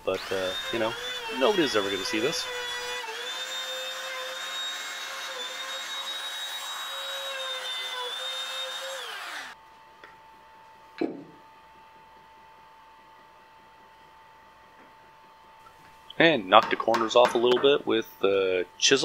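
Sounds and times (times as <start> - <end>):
trim router whining: 0.0 - 9.6
faint hum: 9.6 - 19.0.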